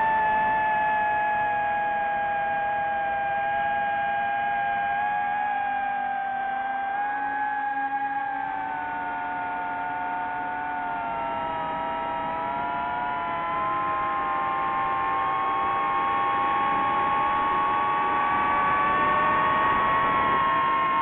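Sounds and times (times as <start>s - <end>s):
drone propellers whining: 7.8s - 21.0s.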